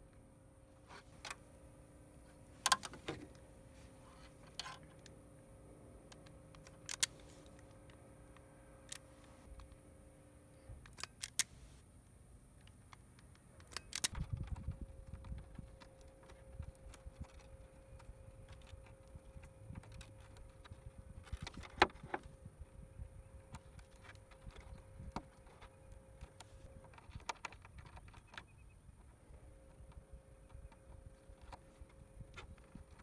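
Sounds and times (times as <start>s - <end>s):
hands handling wires: 2.2s - 5.2s
wire crimper clicks: 6.1s - 9.8s, 12.6s - 21.8s.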